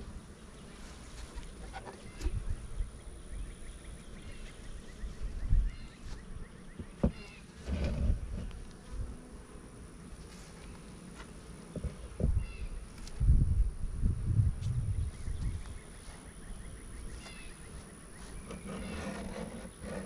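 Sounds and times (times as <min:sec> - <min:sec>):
honeybees buzzing: 0:00.0 - 0:20.0
knocks of wooden hive parts: 0:06.8 - 0:08.6.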